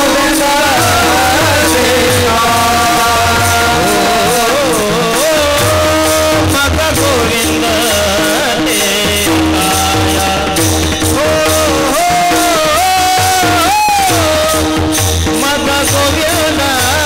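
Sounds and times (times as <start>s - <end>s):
hand cymbals struck in rhythm: 0.0s - 17.0s
men singing together: 0.0s - 17.0s.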